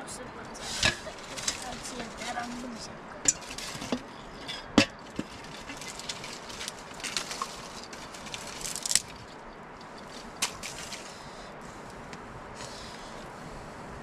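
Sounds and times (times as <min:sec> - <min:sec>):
clicks and knocks of metal pots: 0:03.2 - 0:07.4.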